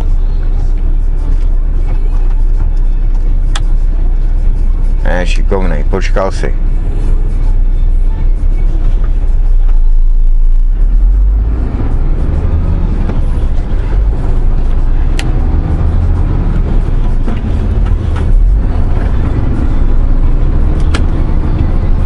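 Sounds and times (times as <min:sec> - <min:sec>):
road noise inside cab: 0:00.0 - 0:22.0
truck diesel engine rumble: 0:00.0 - 0:22.0
sharp click: 0:20.8 - 0:21.2.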